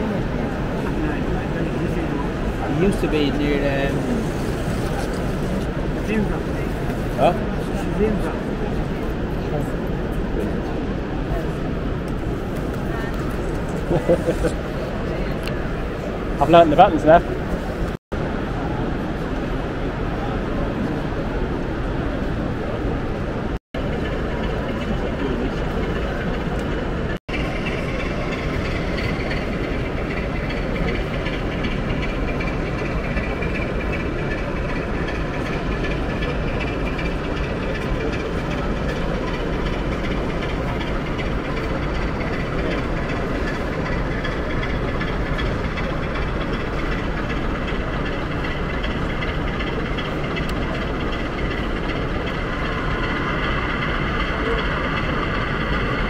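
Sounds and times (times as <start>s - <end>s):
exhibition hall background noise: 0.0s - 23.2s
model locomotive engine sound: 0.0s - 56.0s.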